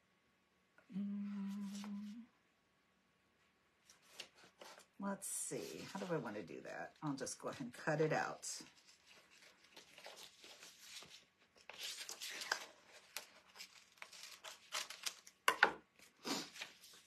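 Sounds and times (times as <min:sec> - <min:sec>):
paper backing rustling: 0:03.9 - 0:04.9, 0:05.5 - 0:17.0.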